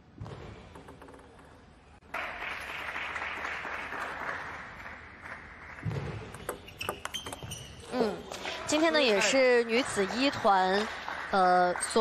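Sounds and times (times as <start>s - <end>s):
applause: 2.1s - 5.8s, 9.2s - 12.0s.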